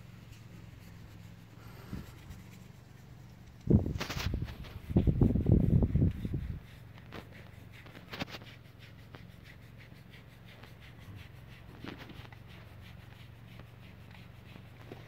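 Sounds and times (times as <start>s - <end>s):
low steady hum: 0.0s - 15.0s
scratching of wool: 0.0s - 15.0s.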